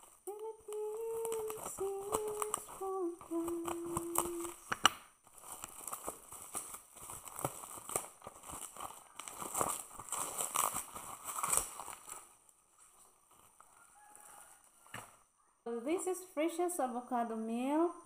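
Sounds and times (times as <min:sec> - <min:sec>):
bubble wrap crinkling: 0:00.0 - 0:15.3
woman humming: 0:00.2 - 0:04.7.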